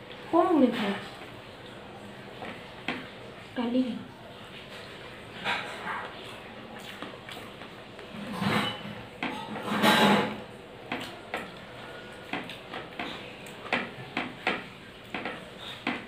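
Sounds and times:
chewing clicks and smacks: 5.9 - 8.1, 10.9 - 16.0
fingers working food on plate: 10.8 - 16.0.

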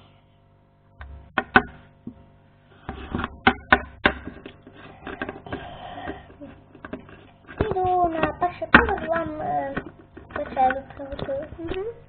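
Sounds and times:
plastic toys knocking on wood floor: 2.9 - 11.9.

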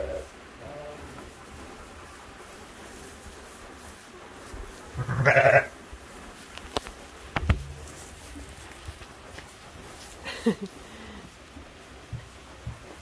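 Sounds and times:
sheep bleating: 5.0 - 5.7
sharp knocks: 7.4 - 7.9.

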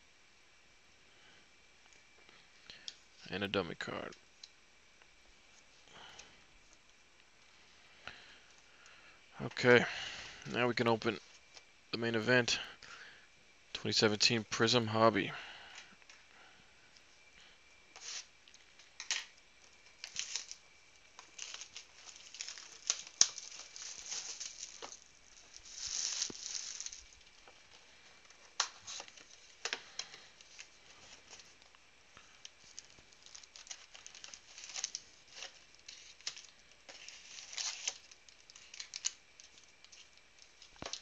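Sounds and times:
plastic wrap crinkling: 17.9 - 41.0
foil packs rustling: 18.0 - 41.0.

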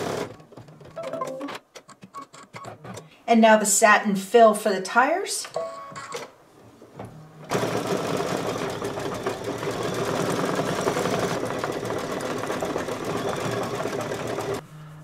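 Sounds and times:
embroidery machine stitching: 0.0 - 0.8, 7.5 - 14.6.

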